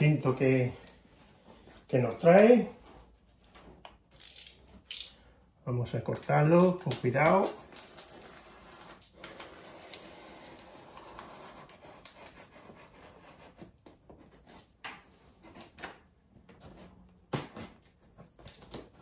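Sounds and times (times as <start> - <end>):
blade scraping through tape: 7.6 - 13.8.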